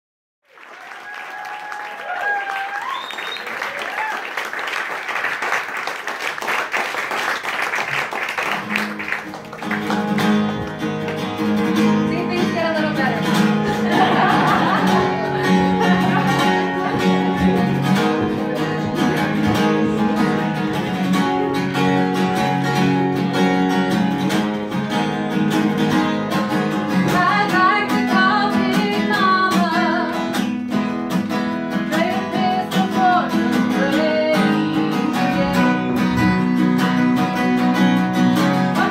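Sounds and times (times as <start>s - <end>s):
applause: 0.4s - 11.5s
acoustic guitar playing: 7.8s - 38.9s
person singing: 26.6s - 30.3s, 31.8s - 36.6s, 38.4s - 38.9s.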